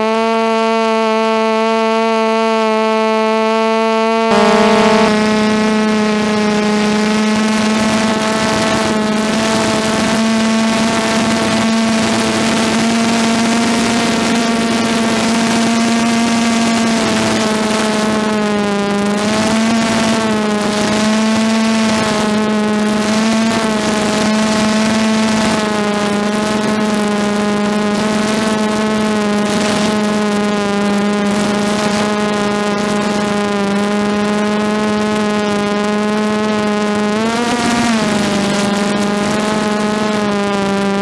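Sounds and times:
drone motors whining: 0:03.5 - 0:41.0.

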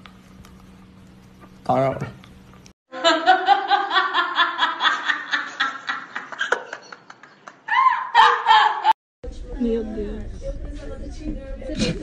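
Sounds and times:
woman laughing hard: 0:02.9 - 0:09.0.

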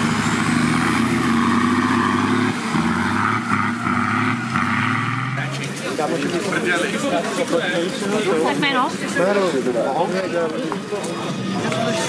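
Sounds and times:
vehicle engine running: 0:00.0 - 0:06.2.

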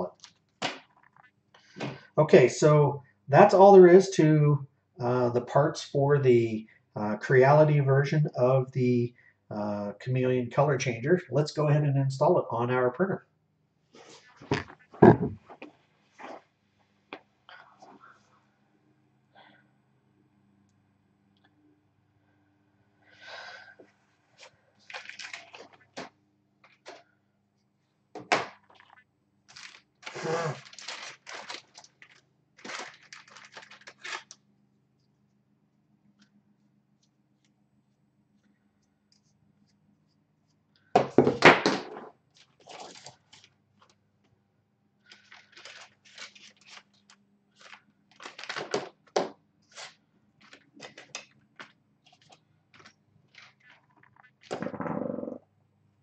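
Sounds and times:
plastic bags rustling: 0:24.8 - 0:26.0, 0:29.5 - 0:34.4, 0:45.1 - 0:49.0.

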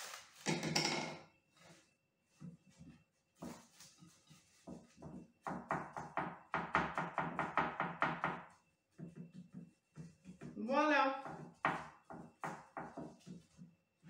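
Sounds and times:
cling film crinkling: 0:00.0 - 0:00.4.

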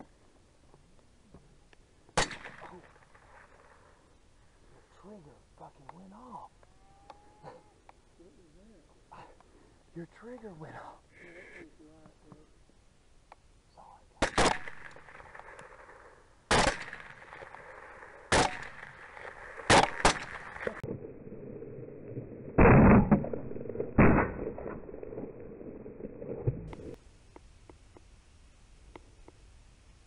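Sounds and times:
rifle shots with echo: 0:02.2 - 0:03.9, 0:14.2 - 0:20.8.

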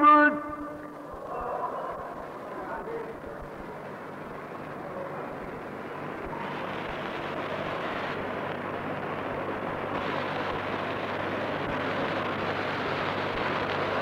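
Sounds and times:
low electrical hum: 0:00.0 - 0:14.0
crowd murmur: 0:00.3 - 0:08.2.

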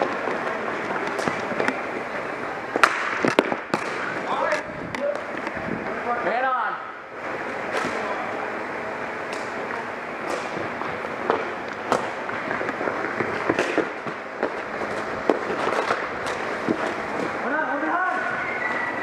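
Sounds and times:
hockey sticks cracking: 0:02.7 - 0:05.6, 0:09.3 - 0:19.0.

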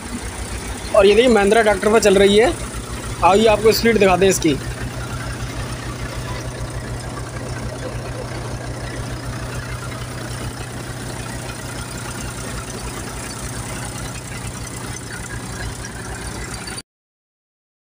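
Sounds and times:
thresher drum whirring and rattling: 0:00.0 - 0:16.8
tractor diesel engine running: 0:00.0 - 0:16.8.

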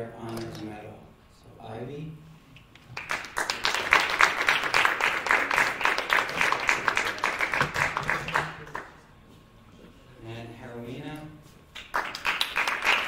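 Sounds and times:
audience applauding: 0:02.9 - 0:09.0, 0:11.8 - 0:13.0.

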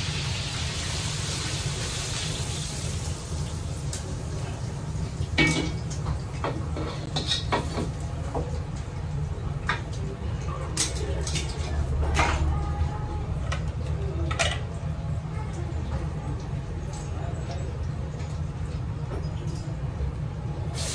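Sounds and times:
gas burners rumbling: 0:00.0 - 0:20.9
metal utensils clanking on wok: 0:06.8 - 0:07.9.

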